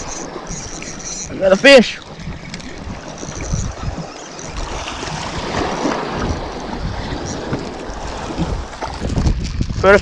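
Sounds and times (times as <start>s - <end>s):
wind blowing across microphone: 0.0s - 10.0s
small waves washing over rocks: 4.3s - 9.9s.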